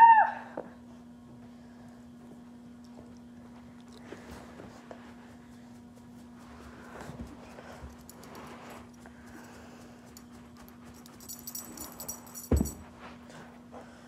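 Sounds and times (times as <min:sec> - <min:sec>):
faint steady hum: 0:00.0 - 0:14.0
light metallic jingle: 0:10.0 - 0:13.0.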